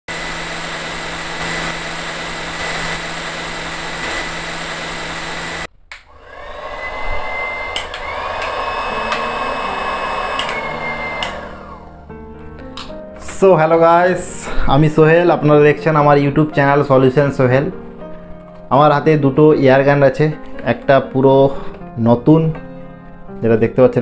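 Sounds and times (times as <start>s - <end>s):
heat gun running: 0.1s - 12.0s
sharp clicks: 7.7s - 9.3s, 10.3s - 11.4s.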